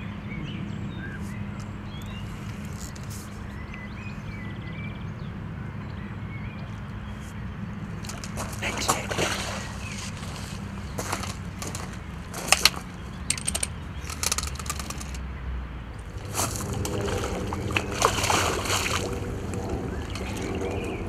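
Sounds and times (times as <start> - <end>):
fish splashing at surface: 9.0 - 9.8, 16.2 - 20.6
sharp clicks: 12.5 - 15.2.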